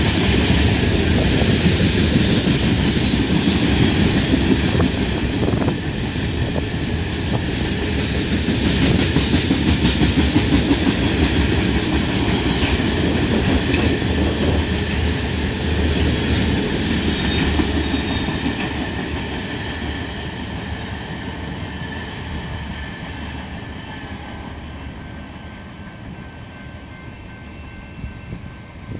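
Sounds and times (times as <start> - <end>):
train wheels clickety-clack: 0.0 - 28.9.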